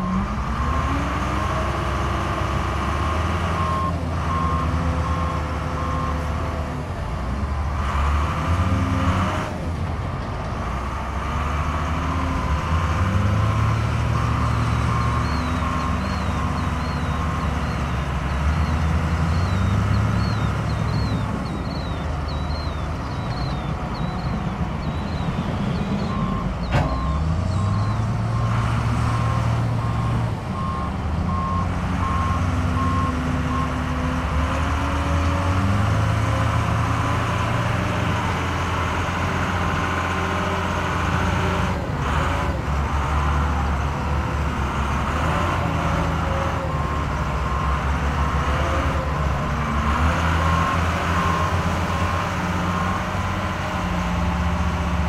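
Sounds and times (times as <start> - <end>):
heavy diesel engines working: 0.0 - 55.0
reversing alarm beeping: 14.1 - 33.9.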